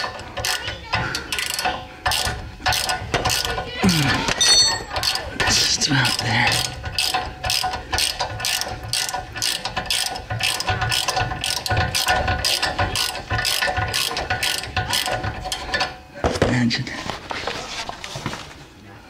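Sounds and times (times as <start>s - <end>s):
ratchet wrench clicking: 0.0s - 3.7s, 4.4s - 15.9s.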